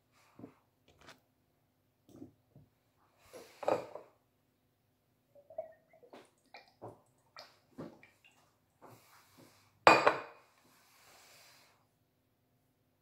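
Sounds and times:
glass bottle clink: 0:09.9 - 0:10.3.

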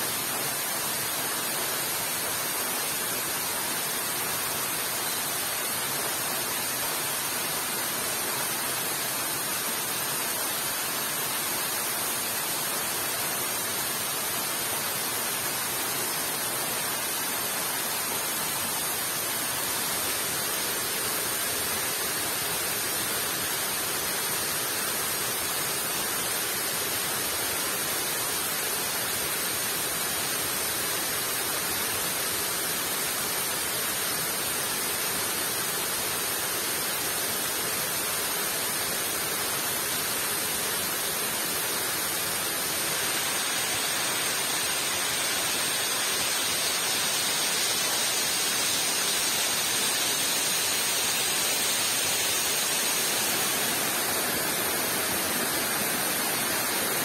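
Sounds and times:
water rushing: 0:13.6 - 0:57.0.

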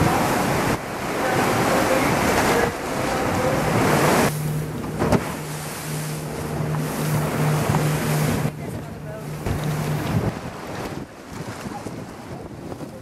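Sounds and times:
surf churning in a cave: 0:00.0 - 0:04.3
boat engine humming: 0:00.0 - 0:13.0
water rushing past: 0:00.0 - 0:13.0
wind on microphone: 0:06.3 - 0:13.0.

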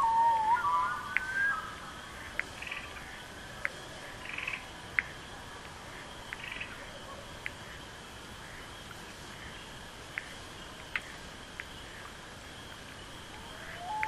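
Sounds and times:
distant frog chorus hum: 0:00.0 - 0:14.0
frog peeps and trills: 0:03.6 - 0:04.7.

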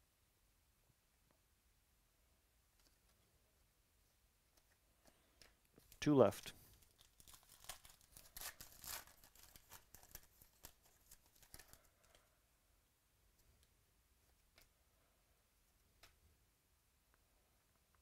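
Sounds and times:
foil wrapper tearing and crinkling: 0:06.7 - 0:11.8.

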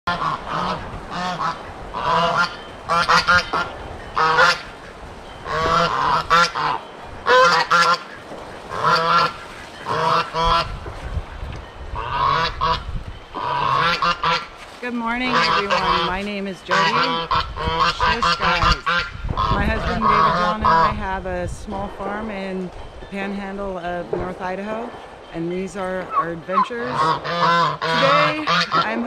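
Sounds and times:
geese honking: 0:00.1 - 0:29.0.

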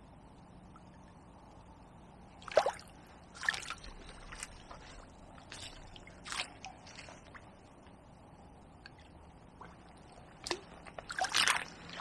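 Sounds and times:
water splashes and drips: 0:02.4 - 0:08.0, 0:08.8 - 0:12.0.

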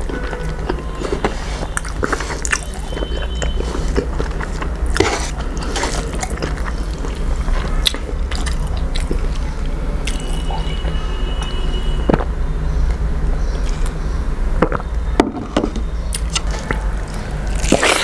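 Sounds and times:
wet chewing: 0:00.0 - 0:12.3, 0:13.6 - 0:14.0, 0:16.1 - 0:18.0
mouth clicks and smacks: 0:00.0 - 0:14.0, 0:16.1 - 0:18.0
rice squelching by hand: 0:00.4 - 0:07.7.

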